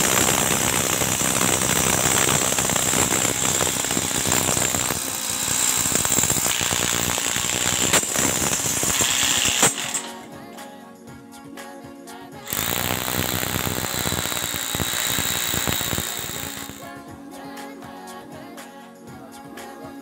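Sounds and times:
hammer drill drilling: 0.0s - 10.3s, 12.5s - 16.9s.

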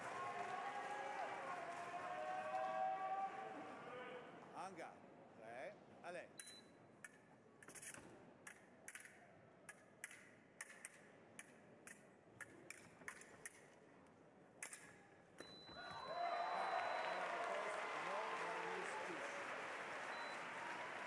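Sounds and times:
applause: 0.0s - 4.2s, 15.8s - 21.0s
fencing blades clashing: 6.4s - 13.9s, 14.6s - 15.6s.

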